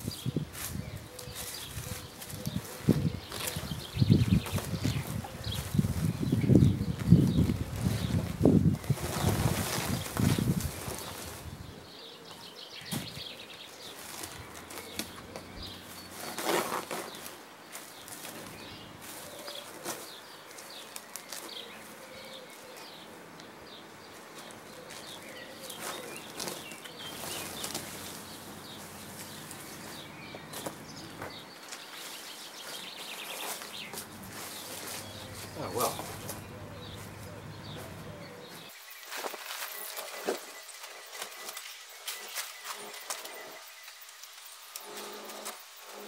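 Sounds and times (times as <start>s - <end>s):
weeds tearing: 0.0s - 11.8s, 12.9s - 22.4s, 24.1s - 46.0s
small birds chirping: 0.0s - 46.0s
fabric sheeting rustling and flapping: 1.4s - 11.8s, 12.9s - 21.6s.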